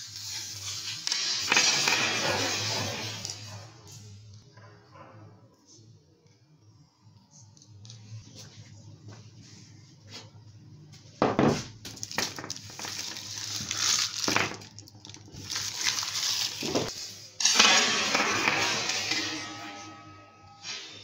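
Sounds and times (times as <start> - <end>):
candies clattering on table: 11.2 - 18.8
plastic wrappers crinkling: 11.9 - 16.9.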